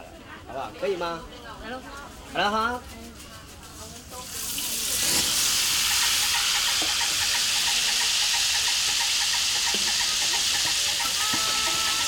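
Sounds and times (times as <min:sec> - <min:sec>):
deep-frying sizzle in oil: 0:04.1 - 0:12.0.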